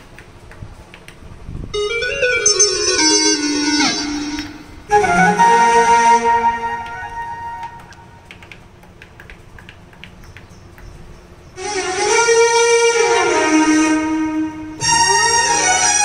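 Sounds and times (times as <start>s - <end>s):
bright note sliding down in pitch: 1.8s - 7.8s
keyboard held note: 1.8s - 7.8s.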